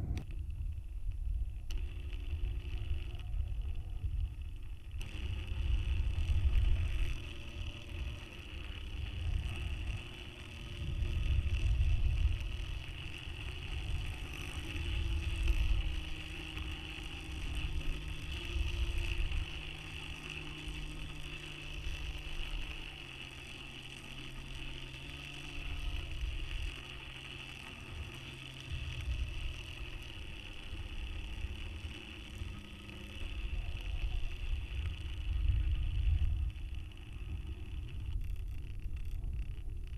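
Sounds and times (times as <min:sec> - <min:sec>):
wind buffeting microphone: 0:00.0 - 0:01.8
electric motor hum: 0:00.0 - 0:39.9.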